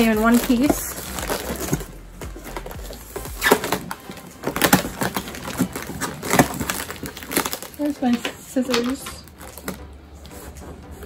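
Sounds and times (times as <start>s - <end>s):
cardboard box ripping open: 0.0s - 7.8s.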